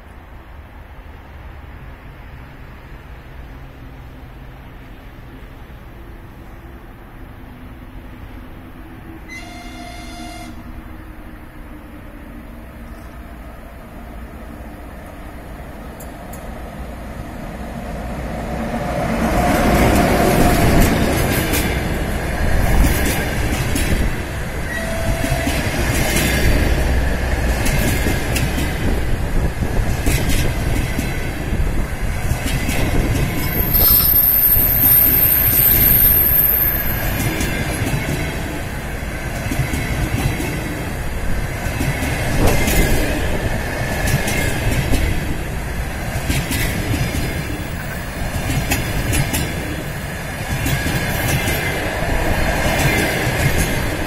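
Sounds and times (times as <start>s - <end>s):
electric locomotive passing: 0.0s - 54.0s
train coaches rumbling past: 0.0s - 54.0s
high squeal: 33.3s - 37.2s.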